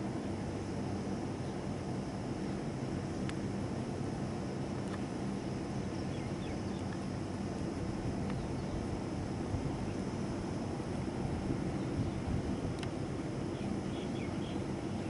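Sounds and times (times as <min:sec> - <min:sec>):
faint mechanical hum: 0:00.0 - 0:15.0
low background rumble: 0:00.0 - 0:15.0
faint high ticks: 0:03.2 - 0:03.4, 0:04.7 - 0:05.1, 0:06.8 - 0:08.4, 0:12.7 - 0:13.0.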